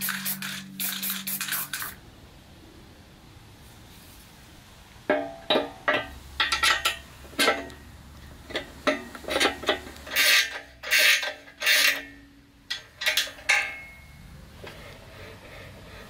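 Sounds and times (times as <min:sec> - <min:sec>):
metal-on-metal clicks and knocks: 0:05.1 - 0:07.8, 0:08.5 - 0:14.0
metal rod rasping scrapes: 0:10.1 - 0:12.2.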